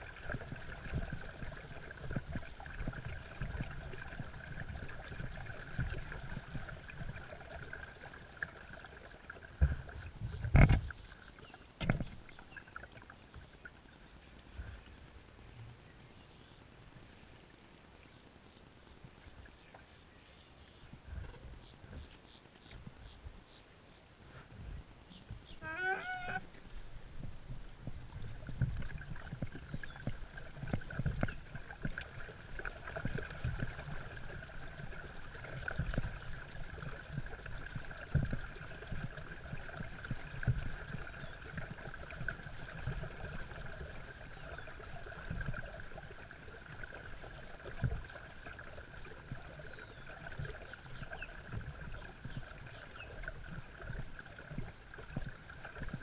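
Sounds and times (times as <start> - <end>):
water churning under paddle wheel: 0.0 - 11.0, 25.4 - 56.0.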